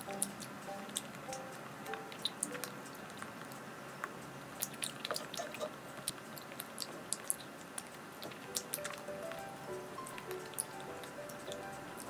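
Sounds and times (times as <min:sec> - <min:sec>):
person chewing soft cake: 0:00.0 - 0:09.4.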